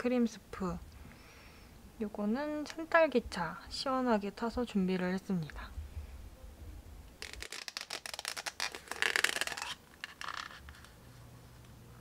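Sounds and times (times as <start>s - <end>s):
plastic packaging crackling: 7.2s - 11.0s.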